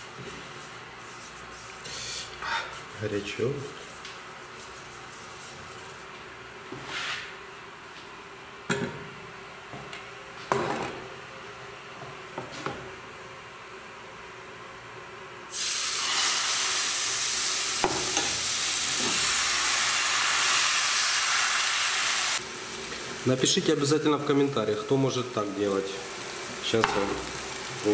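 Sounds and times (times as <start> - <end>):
batter sizzling in frying pan: 15.5 - 27.9.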